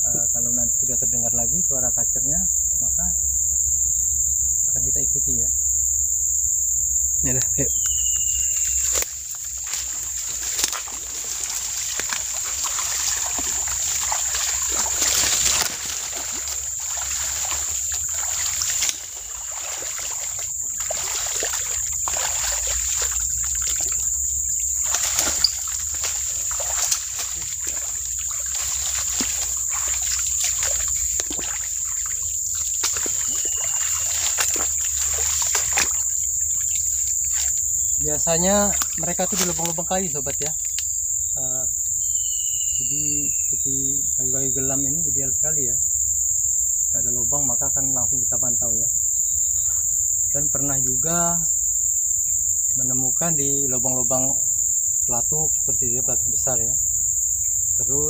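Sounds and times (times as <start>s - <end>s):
insects droning: 0.0s - 58.0s
brush rustling: 7.8s - 40.4s
footsteps splashing through mud: 8.5s - 37.7s, 38.7s - 39.9s.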